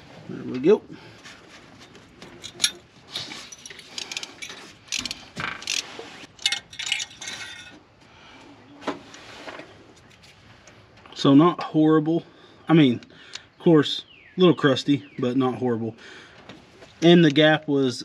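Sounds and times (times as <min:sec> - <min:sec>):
ratchet clicking and clinking: 0:03.5 - 0:07.8.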